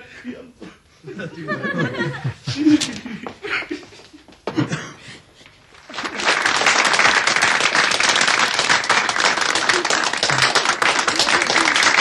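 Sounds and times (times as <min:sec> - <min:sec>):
audience applauding: 0:05.8 - 0:12.0.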